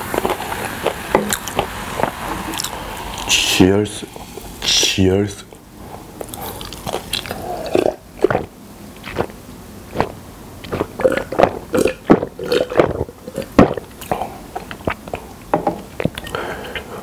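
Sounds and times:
person gulping water: 6.2s - 16.9s.

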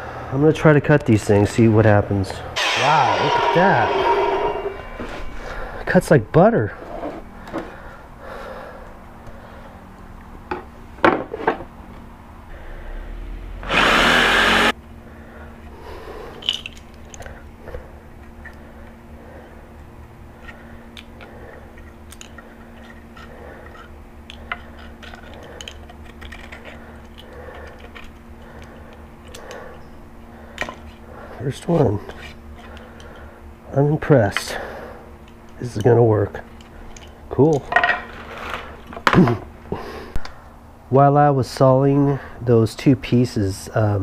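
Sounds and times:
loud burst of noise: 2.6s - 5.9s.

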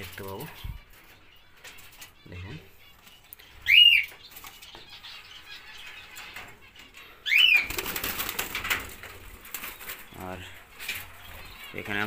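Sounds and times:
rustling and wing flutter: 6.2s - 12.0s.

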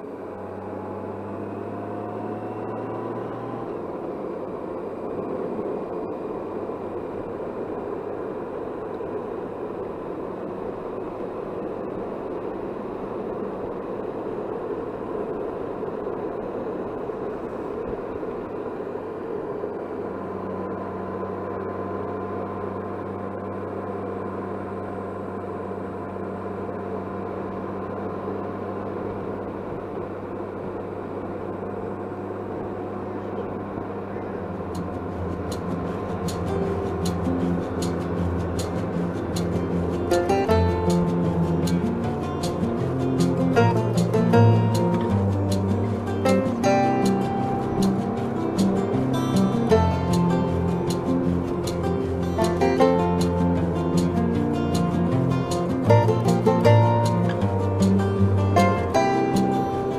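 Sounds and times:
low motorcycle engine hum: 0.0s - 59.9s.

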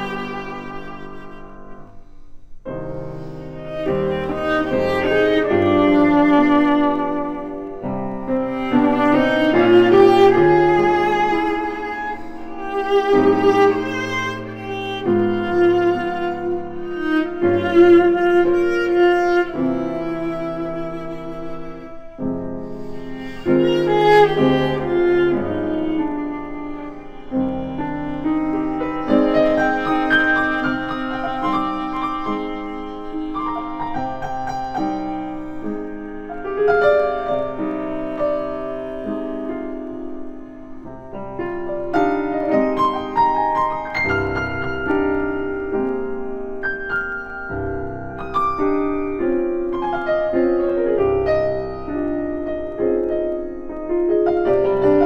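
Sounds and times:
piano: 0.0s - 55.0s.

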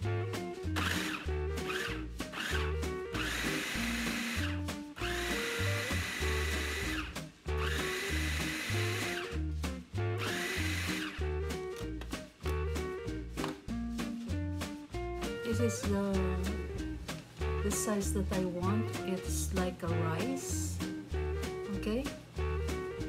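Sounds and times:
food processor whining: 0.8s - 9.4s, 10.2s - 11.4s.

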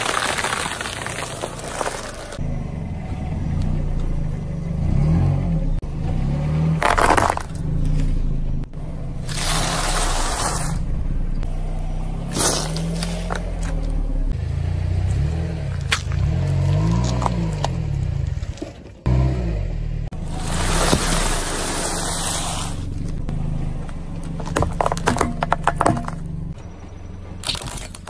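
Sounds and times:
car engine running slowly: 2.2s - 6.2s, 10.8s - 28.0s.

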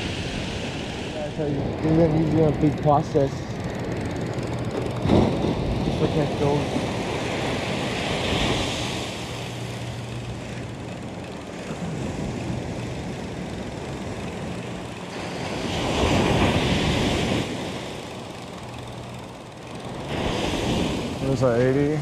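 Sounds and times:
surf breaking on a beach: 4.9s - 22.0s.

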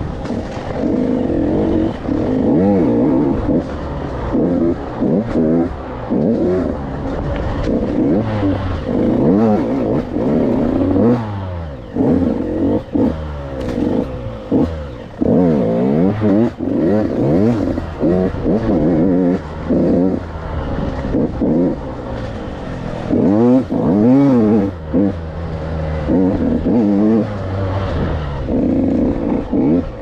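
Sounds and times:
dirt bike engine revving: 0.0s - 30.0s.

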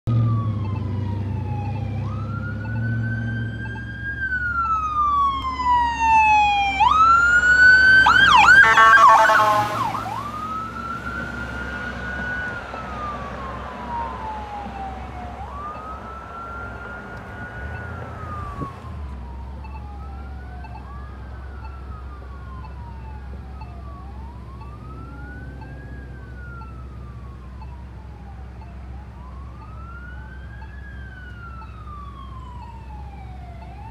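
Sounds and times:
emergency vehicle sirens wailing: 0.0s - 33.9s
engine rumble: 0.0s - 33.9s.

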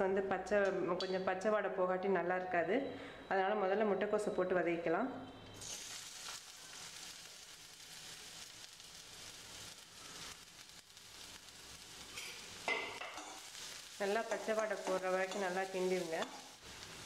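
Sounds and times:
cabbage sizzling in hot oil: 5.6s - 17.0s.

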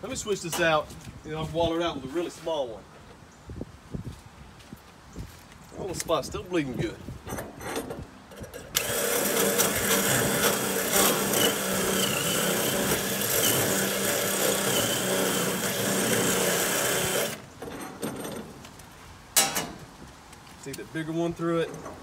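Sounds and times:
cordless drill drilling metal: 8.7s - 17.5s.

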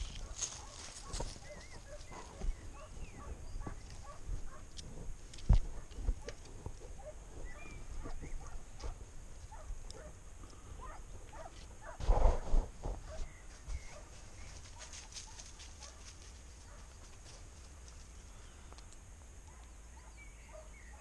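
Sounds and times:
distant dog baying: 0.2s - 4.8s, 5.6s - 12.1s, 13.0s - 16.9s, 19.5s - 21.0s.

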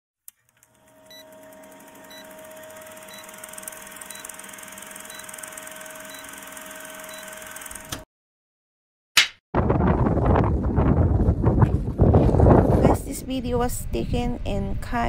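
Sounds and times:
film projector whirring and clattering: 0.4s - 8.1s.

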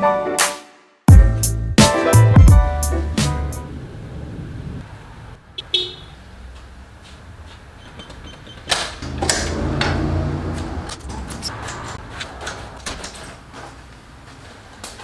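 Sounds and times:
door swinging open rumble: 7.0s - 13.9s.

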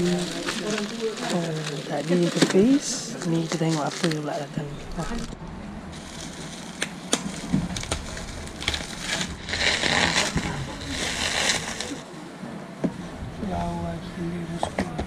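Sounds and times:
plastic crinkling and crackling: 0.0s - 12.1s
box cutter slitting bubble wrap: 6.0s - 12.0s.

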